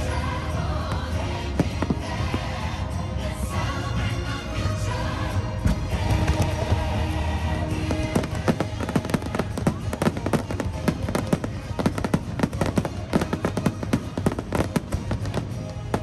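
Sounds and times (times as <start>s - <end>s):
music playing: 0.0s - 16.0s
fireworks bangs and crackles: 0.8s - 2.7s, 5.6s - 16.0s.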